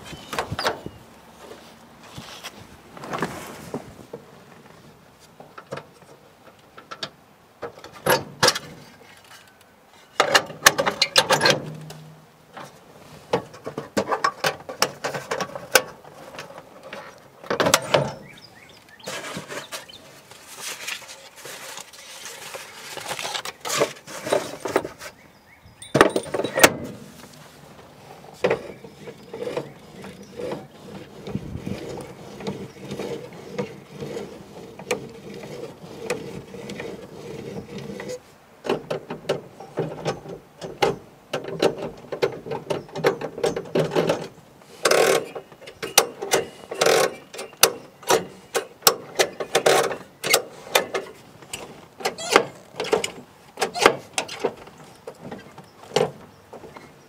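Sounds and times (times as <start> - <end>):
short squeak: 25.8 - 26.9
metal tools clinking and rattling: 25.8 - 27.0.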